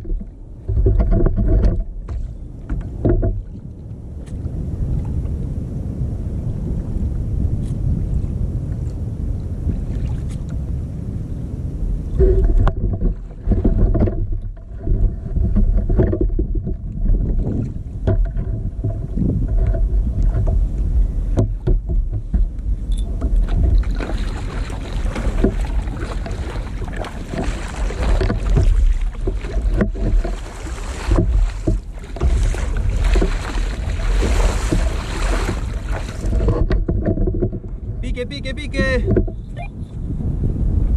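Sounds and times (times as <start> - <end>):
water sloshing against plastic hull: 0.0 - 5.4, 12.0 - 39.9
wind rumbling on microphone: 0.0 - 40.9
paddle strokes splashing: 12.1 - 39.6.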